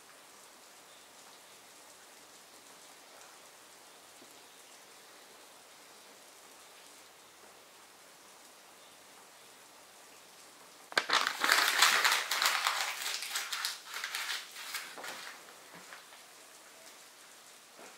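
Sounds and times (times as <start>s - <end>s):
rustling and crackling: 10.9s - 17.0s.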